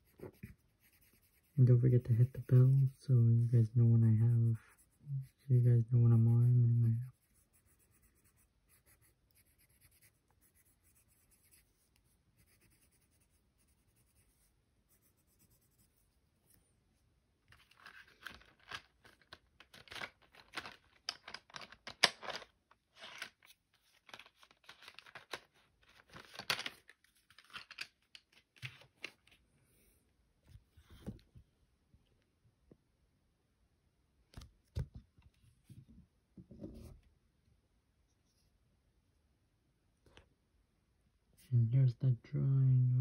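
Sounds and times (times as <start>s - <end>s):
rustling and crinkling handling noise: 17.4s - 29.5s.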